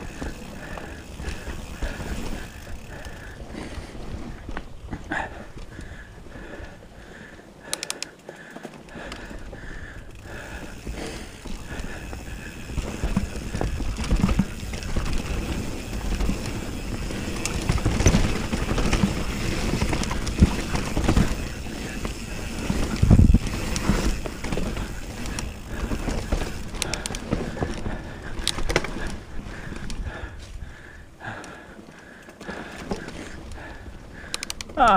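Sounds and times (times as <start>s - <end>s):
bike rattling and knocking: 0.0s - 6.6s, 7.2s - 34.9s
tyres rolling over rough ground: 0.0s - 7.6s, 8.2s - 34.9s
wind rushing on microphone: 22.8s - 23.8s.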